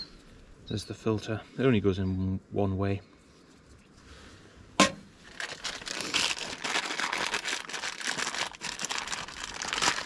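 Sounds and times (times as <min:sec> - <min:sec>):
plastic packaging crinkling: 0:05.2 - 0:10.0.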